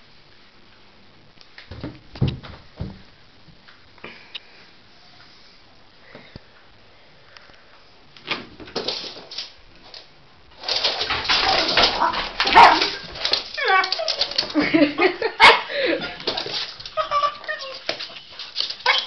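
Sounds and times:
scuffling and handling noise: 8.6 - 15.0, 16.0 - 19.0.

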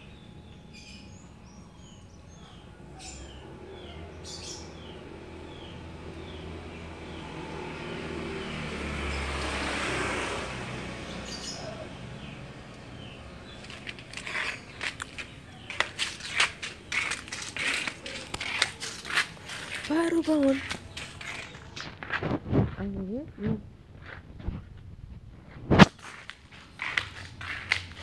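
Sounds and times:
small birds chirping: 0.0 - 23.6
footsteps: 13.4 - 28.0.

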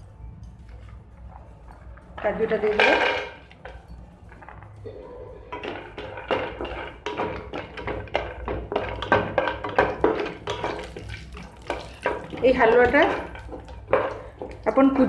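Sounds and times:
spatula tapping and scraping pan: 5.5 - 15.0.

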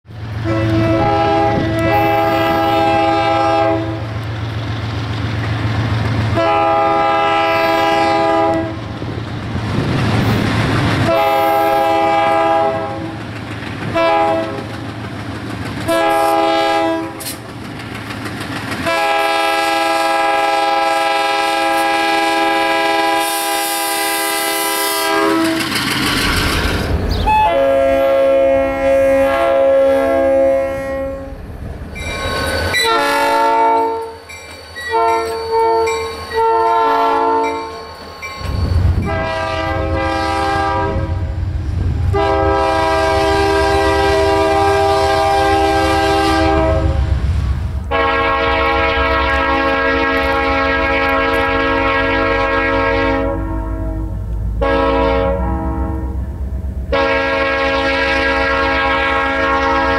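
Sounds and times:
different horn: 0.4 - 4.2, 6.3 - 8.9, 11.0 - 13.2, 13.9 - 14.7, 15.9 - 17.4, 18.8 - 25.8, 27.3 - 31.4, 32.8 - 34.2, 34.9 - 37.8, 39.0 - 41.3, 42.1 - 47.0, 47.9 - 56.3, 56.9 - 59.9
locomotive air horn blasts: 0.4 - 4.3, 6.3 - 9.0, 11.0 - 13.2, 13.9 - 14.8, 15.9 - 17.4, 18.8 - 25.7, 27.3 - 31.4, 32.7 - 37.9, 39.0 - 41.3, 42.1 - 47.1, 47.9 - 59.9.

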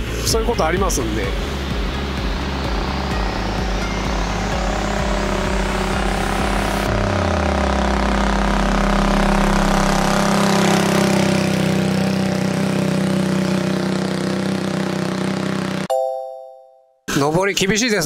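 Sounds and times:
motorcycle engine climbing uphill: 0.7 - 15.9.

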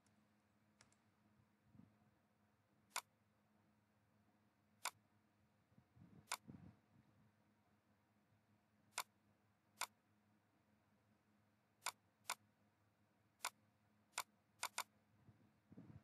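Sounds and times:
faint low hum: 0.0 - 16.0
computer mouse clicking: 0.8 - 1.0, 6.3 - 6.5, 8.9 - 9.1, 9.8 - 10.0, 11.8 - 12.4, 13.4 - 14.9.

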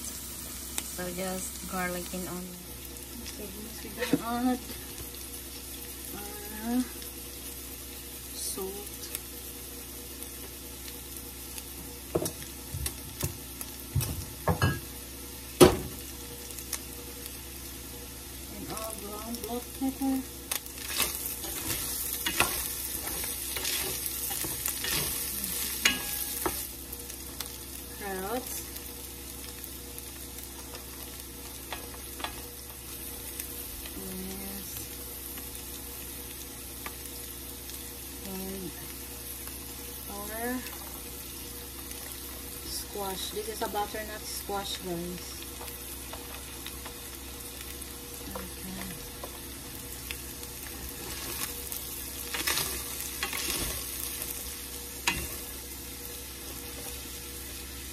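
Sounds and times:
meat sizzling in a skillet: 0.0 - 57.9
spatula scraping a pan: 20.8 - 26.6, 52.3 - 53.9.

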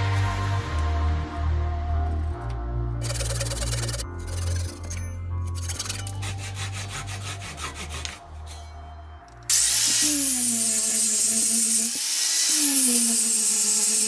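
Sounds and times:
angle grinder sanding wood: 3.0 - 4.9, 5.6 - 8.5, 9.5 - 14.0
hand saw rasping through wood: 3.0 - 8.6, 10.0 - 14.0.

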